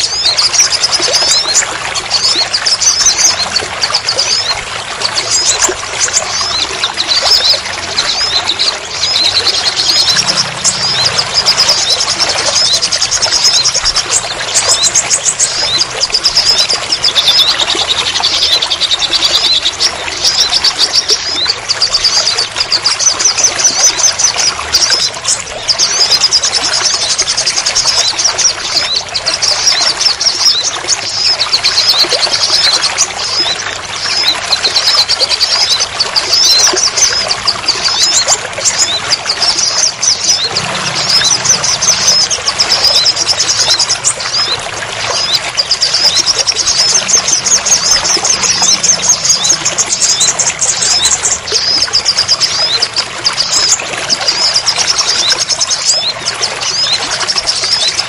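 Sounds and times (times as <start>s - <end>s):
rain water pouring and splashing: 0.0s - 58.0s
small bird trilling: 5.3s - 19.8s.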